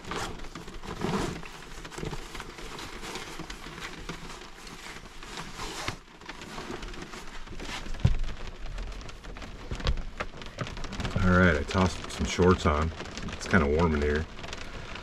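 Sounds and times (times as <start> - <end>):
fabric backpack rustling: 0.0 - 15.0
rain on a camper shell: 0.0 - 15.0.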